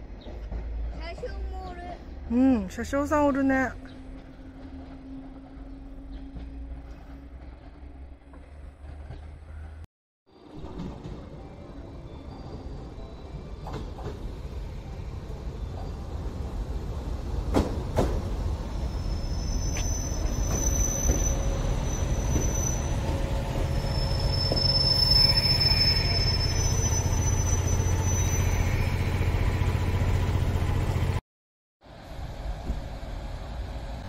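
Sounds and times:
train rumbling: 0:00.0 - 0:31.2, 0:31.8 - 0:34.0
high wheel squeals: 0:18.7 - 0:30.0.

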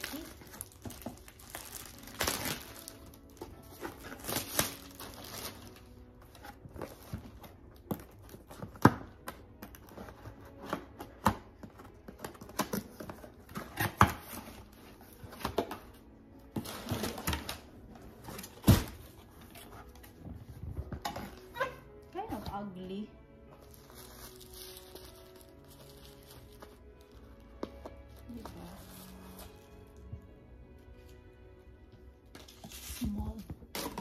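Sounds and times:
plastic packaging crinkling: 0:00.0 - 0:08.8, 0:23.5 - 0:30.0.

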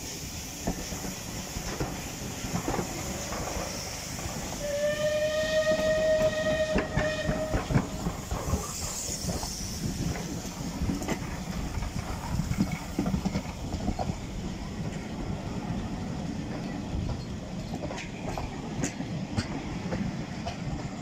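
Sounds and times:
train wheels clattering over rail joints: 0:00.3 - 0:04.6, 0:05.6 - 0:21.0
steam whistle: 0:04.5 - 0:08.0.

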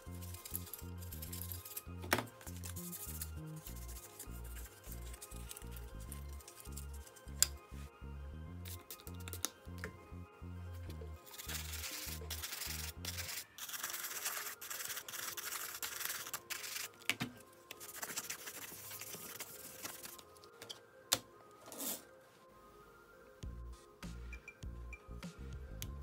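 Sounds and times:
toothbrush scrubbing plastic: 0:11.2 - 0:16.9, 0:17.8 - 0:20.2.

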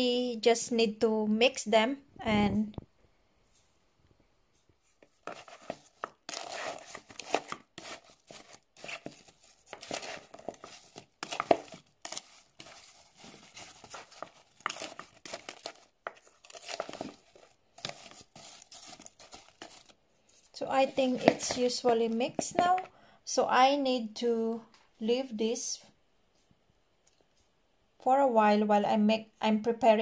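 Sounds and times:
wooden spoon stirring in plastic bowl: 0:04.8 - 0:22.9.

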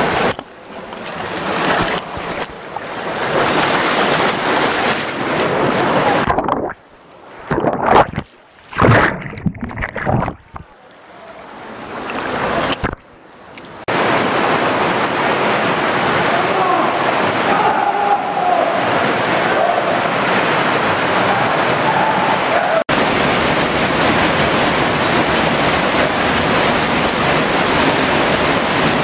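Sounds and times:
muffled underwater rushing: 0:00.0 - 0:13.2
rushing water: 0:00.0 - 0:29.0.

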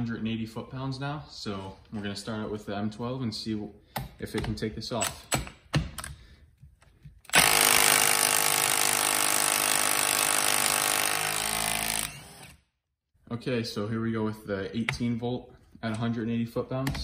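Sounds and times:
impact wrench hammering: 0:07.3 - 0:12.5.

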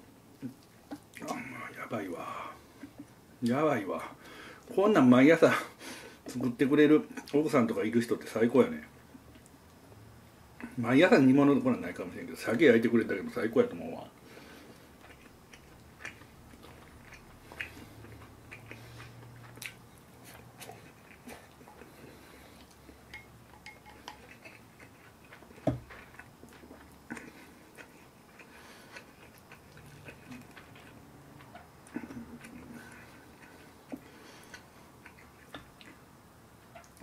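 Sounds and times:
chewing: 0:14.2 - 0:37.0.

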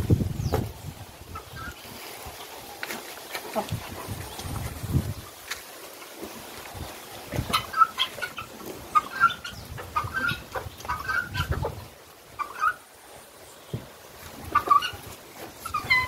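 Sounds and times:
fowl calling harshly: 0:07.4 - 0:11.8, 0:12.4 - 0:12.8, 0:14.5 - 0:16.0.

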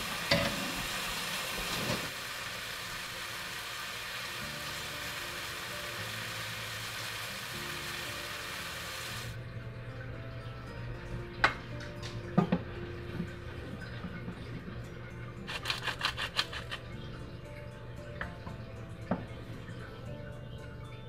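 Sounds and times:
frying sizzling hiss: 0:00.0 - 0:09.4.

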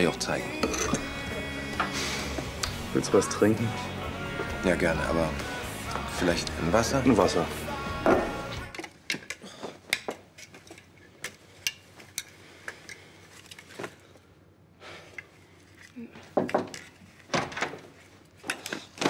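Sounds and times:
glassware and crockery clinking: 0:00.5 - 0:01.1.

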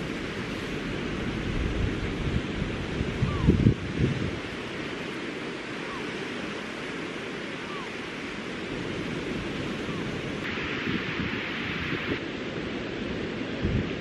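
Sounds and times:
wind on microphone: 0:00.0 - 0:06.7, 0:07.6 - 0:12.3, 0:12.9 - 0:14.0
surf washing onto beach: 0:00.0 - 0:14.0.

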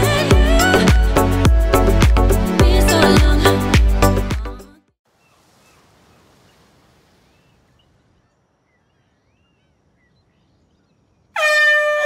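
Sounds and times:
soft bird chirps: 0:05.1 - 0:11.4.

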